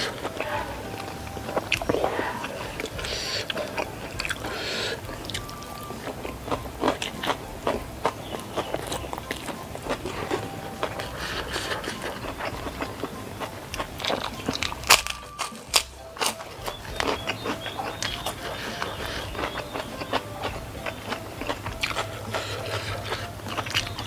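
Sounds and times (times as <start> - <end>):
chewing with wet mouth clicks: 0.0 - 24.0
crunchy cracker bite: 12.8 - 20.3.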